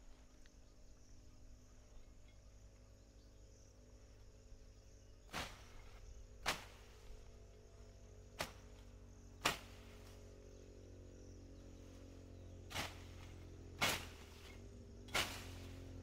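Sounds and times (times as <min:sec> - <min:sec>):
hand tool striking soil: 0:06.4 - 0:06.9, 0:08.4 - 0:08.8, 0:09.4 - 0:10.0, 0:12.7 - 0:15.9.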